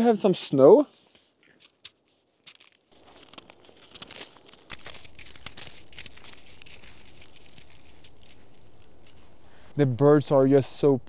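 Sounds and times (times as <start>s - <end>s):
snow crunching in hands: 2.4s - 10.0s.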